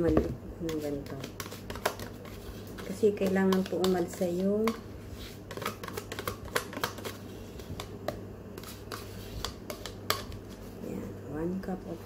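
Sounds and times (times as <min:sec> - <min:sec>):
low steady hum: 0:00.0 - 0:12.0
spoon scraping plastic cup: 0:00.7 - 0:07.9, 0:08.6 - 0:10.4.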